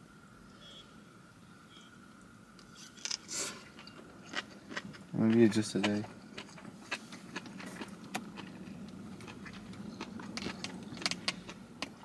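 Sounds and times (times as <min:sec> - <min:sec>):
low steady hum: 0:00.0 - 0:12.0
quiet chewing: 0:02.6 - 0:12.0.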